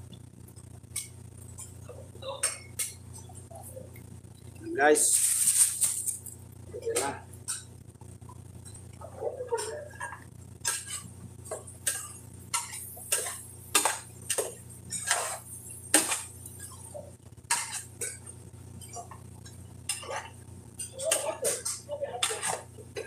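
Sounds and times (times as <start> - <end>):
steady low hum: 0.0 - 23.0
metal spoon scraping a pot: 9.6 - 11.1, 11.9 - 18.1, 19.9 - 22.7.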